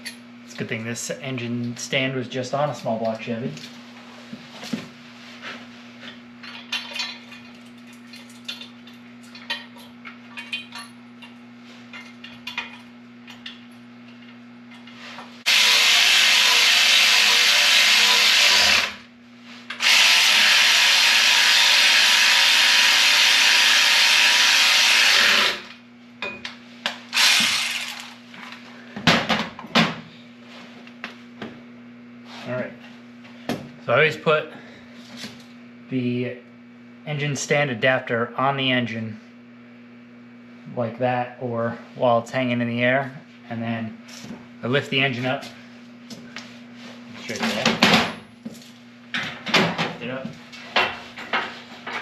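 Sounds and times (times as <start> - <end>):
tools and metal parts clinking: 6.4 - 14.9
power tool running: 15.5 - 19.1, 19.7 - 25.8, 27.1 - 28.2.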